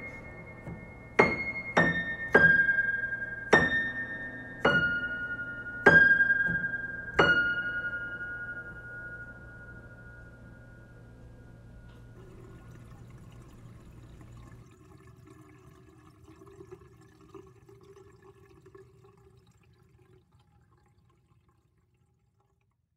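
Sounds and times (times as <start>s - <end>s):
water drips: 11.9s - 22.9s
water draining from a sink: 12.0s - 22.9s.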